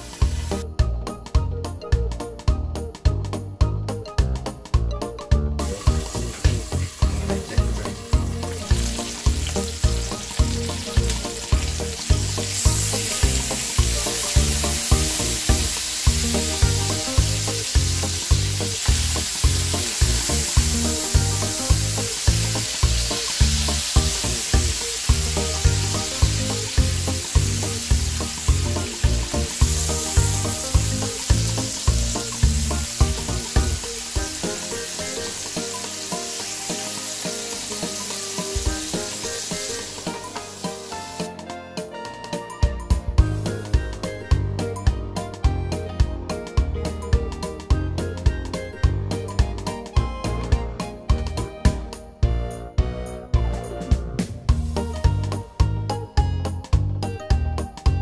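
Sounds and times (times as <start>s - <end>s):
chicken sizzling in oil: 0.0s - 0.7s, 5.6s - 41.4s, 54.5s - 55.4s
background music with steady beat: 0.0s - 58.0s.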